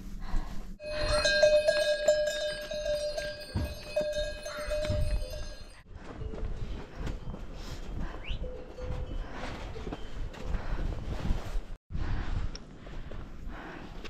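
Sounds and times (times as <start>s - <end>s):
metal bells ringing: 0.8s - 7.7s.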